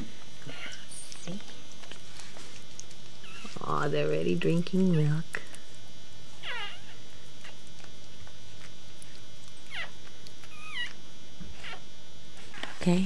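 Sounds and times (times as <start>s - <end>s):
puppies whimpering: 0.4s - 1.3s, 3.2s - 3.6s, 6.4s - 7.6s, 9.6s - 11.8s.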